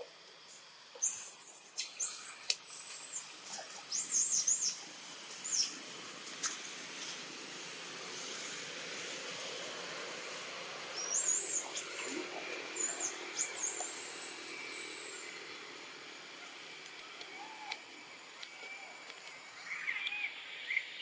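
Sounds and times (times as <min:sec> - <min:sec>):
high-pitched hiss: 0:00.0 - 0:21.0
high-pitched chirping calls: 0:01.0 - 0:05.8, 0:10.9 - 0:12.0, 0:12.7 - 0:15.4, 0:18.5 - 0:21.0.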